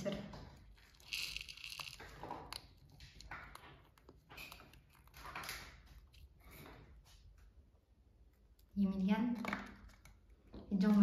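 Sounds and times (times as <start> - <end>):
rat gnawing and crunching: 0.5 - 6.6.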